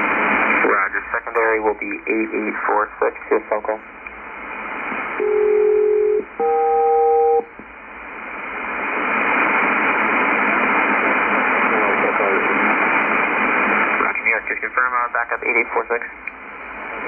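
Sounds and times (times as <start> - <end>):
shortwave static hiss: 0.0 - 17.0
paired tone pulses: 5.2 - 7.5.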